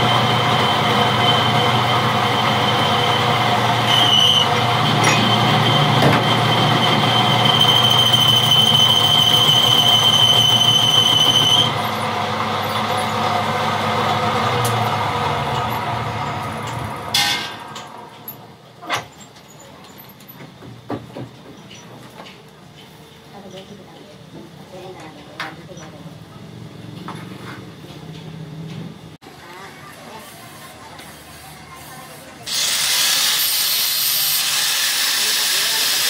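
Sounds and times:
metal lathe running: 0.0 - 18.4, 32.4 - 36.0
cutting tool squealing on steel: 1.2 - 12.1.

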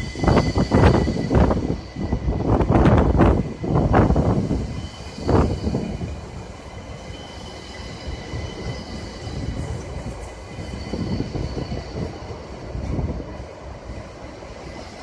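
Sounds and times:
rumble of train wheels: 0.0 - 15.0
train wheels clattering on rails: 0.0 - 15.0.

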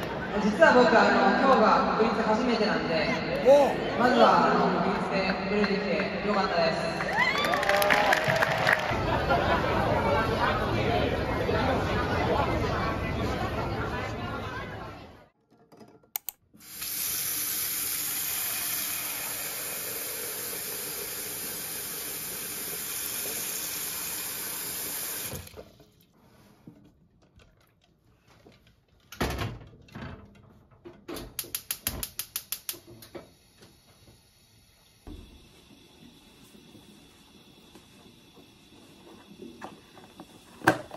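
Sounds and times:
tap water running into pot: 16.6 - 25.6
gas burner igniter clicking: 31.4 - 32.9.

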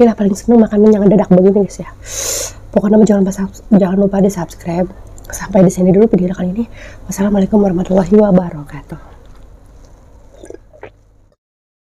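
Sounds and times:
person gulping: 9.9 - 11.3.

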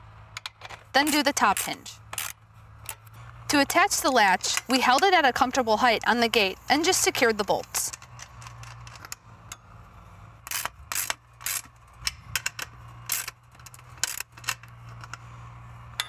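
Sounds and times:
ratchet wrench clicking: 0.4 - 3.1, 10.4 - 15.2.

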